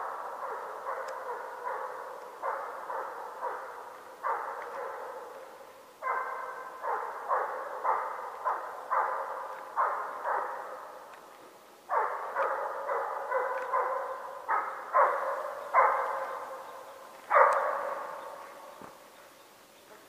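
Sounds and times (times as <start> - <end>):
hound barking with echo: 0.0 - 19.1.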